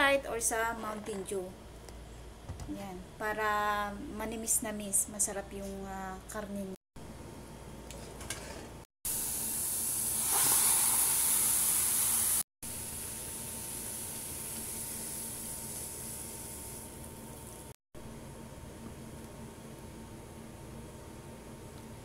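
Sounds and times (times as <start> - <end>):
soda fizzing and splashing: 9.2 - 12.4, 13.1 - 17.7.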